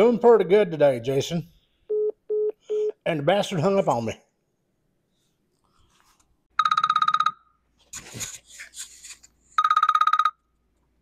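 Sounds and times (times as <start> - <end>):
electronic telephone ringer trilling: 6.6 - 7.4, 9.6 - 10.4.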